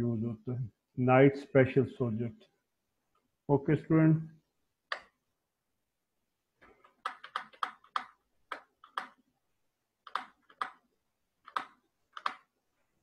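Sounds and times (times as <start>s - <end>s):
computer key or mouse clicks: 11.4s - 12.5s.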